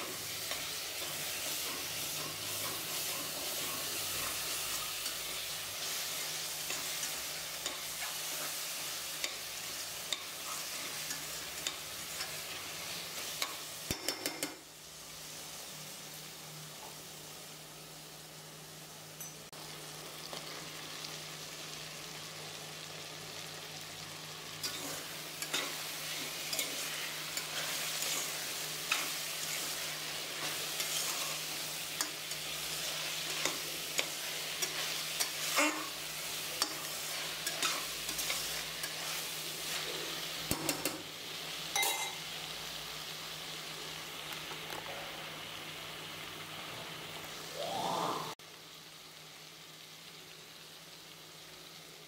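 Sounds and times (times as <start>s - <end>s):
food sizzling in a pot: 0.0s - 52.0s
spoon scraping and clinking pan: 24.6s - 29.7s, 41.7s - 42.2s.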